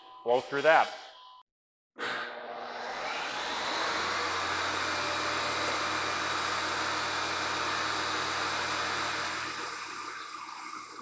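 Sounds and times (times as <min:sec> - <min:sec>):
mill spindle motor whirring: 0:02.4 - 0:11.0.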